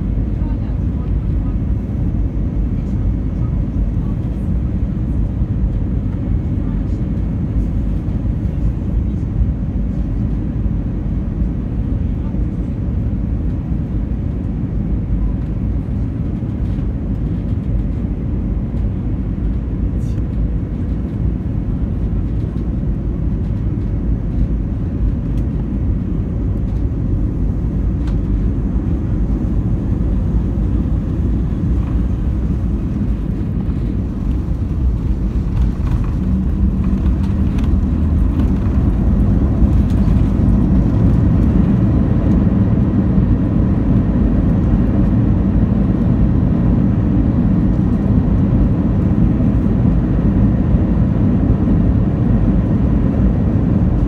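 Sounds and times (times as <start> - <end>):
airliner cabin rumble: 0.0 - 54.0.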